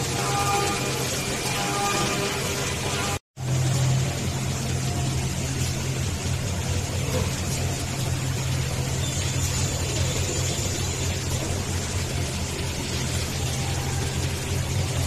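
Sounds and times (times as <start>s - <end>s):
lathe machinery running: 0.0s - 15.0s.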